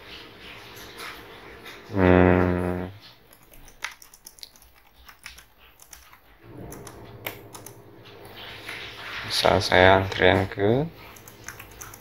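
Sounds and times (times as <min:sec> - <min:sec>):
man humming: 0:01.9 - 0:03.0.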